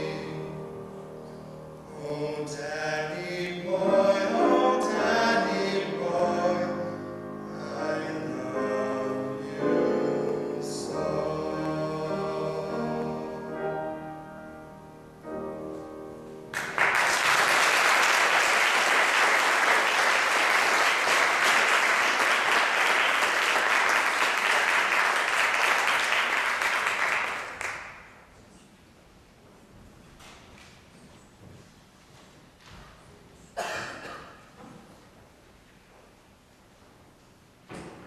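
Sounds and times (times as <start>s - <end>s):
men singing: 0.0s - 0.7s, 1.9s - 13.7s
faint audience room noise: 0.0s - 38.0s
audience applause: 16.5s - 28.1s.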